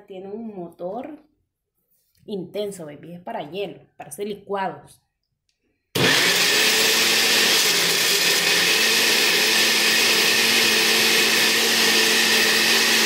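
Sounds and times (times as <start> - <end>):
blender motor whirring: 6.0 - 13.0.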